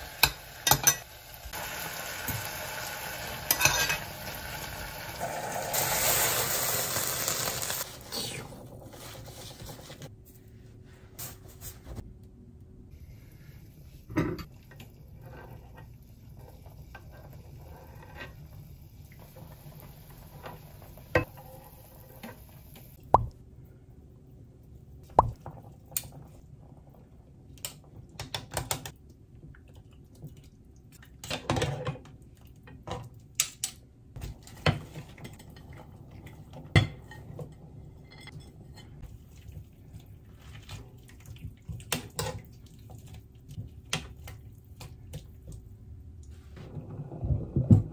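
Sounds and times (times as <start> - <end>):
metal spoons clinking in saucepan: 0.2 - 1.1, 3.5 - 4.1.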